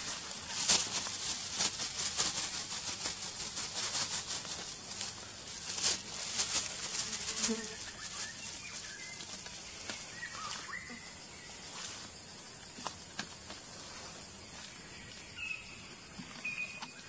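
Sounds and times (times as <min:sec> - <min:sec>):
insect chorus drone: 0:00.0 - 0:17.0
faint chirps: 0:07.8 - 0:12.0, 0:14.4 - 0:17.0.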